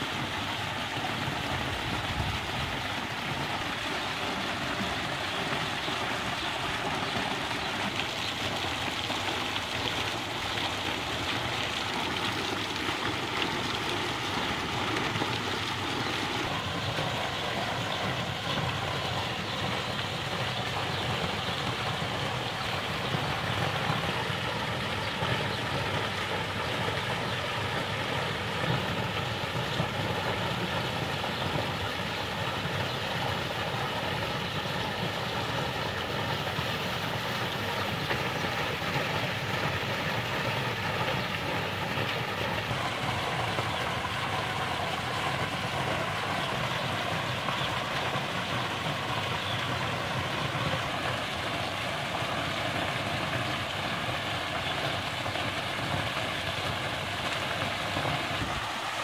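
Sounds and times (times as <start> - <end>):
fountain water cascading and splashing: 0.0 - 59.0.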